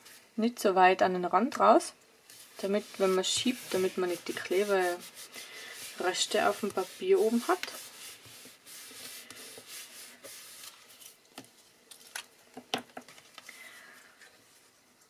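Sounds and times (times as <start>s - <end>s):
paper rustling and sliding: 2.3s - 11.2s.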